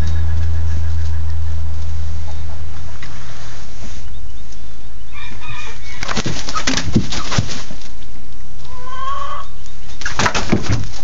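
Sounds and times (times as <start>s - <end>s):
scuffling and thumps: 6.0s - 8.0s, 10.0s - 11.0s
rooster clucking: 8.7s - 9.5s.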